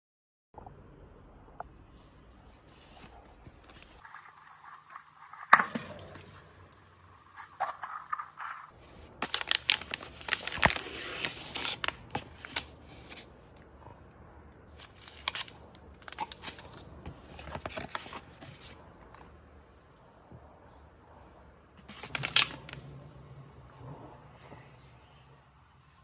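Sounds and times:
cardboard packaging rustling: 7.4 - 13.3, 14.8 - 19.3, 21.8 - 23.0.

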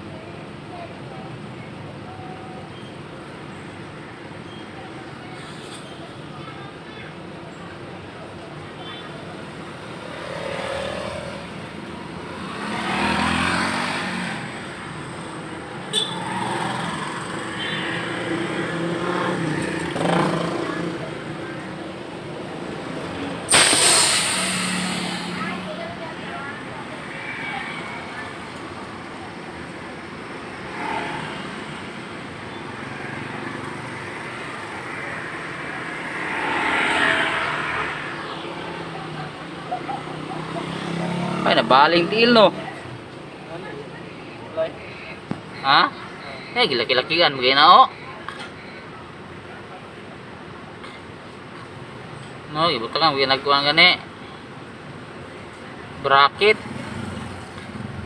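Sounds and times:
cars and motorcycles passing: 0.0 - 58.0
road traffic: 0.0 - 58.0.

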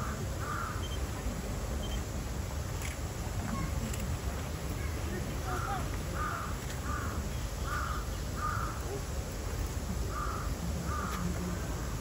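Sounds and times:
crow cawing: 0.0 - 0.8, 5.5 - 8.8, 10.1 - 11.2.

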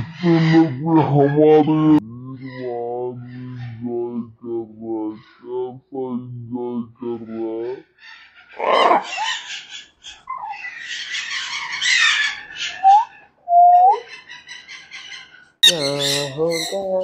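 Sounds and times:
parrots screeching and squawking: 7.9 - 13.4, 14.0 - 17.0
whistled bird notes: 12.6 - 17.0.

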